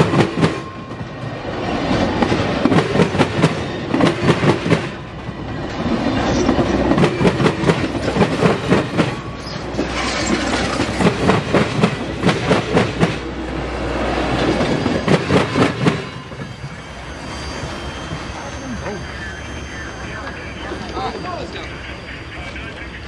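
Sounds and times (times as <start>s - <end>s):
train wheels clicking over track: 0.0s - 13.4s, 14.0s - 16.7s
steady train rumble: 0.0s - 23.0s.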